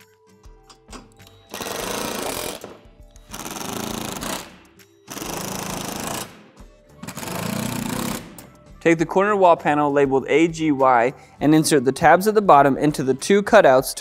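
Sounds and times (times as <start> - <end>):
cordless drill driving screws: 1.5 - 4.5, 5.1 - 6.3.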